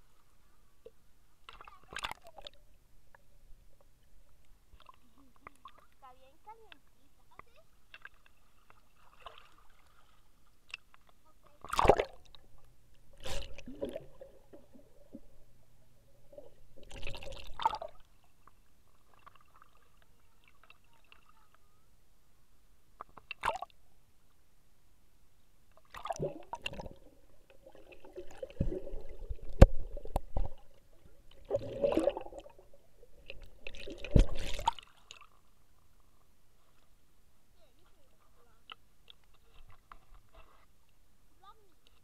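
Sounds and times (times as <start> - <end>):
muffled underwater sloshing: 0.0 - 21.5, 25.8 - 37.0.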